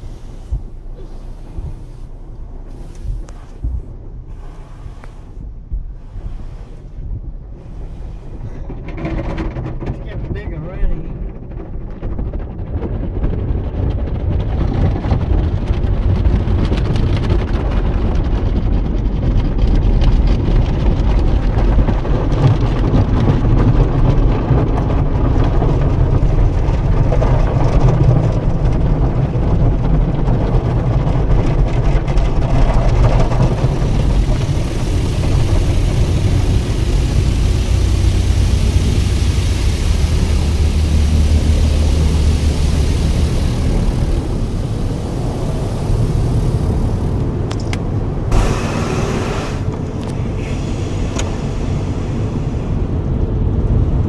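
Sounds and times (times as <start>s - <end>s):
water hissing on windshield: 0.0s - 8.6s, 31.6s - 47.5s, 48.3s - 53.0s
car wash brushes and spray: 0.0s - 10.5s, 22.3s - 53.5s.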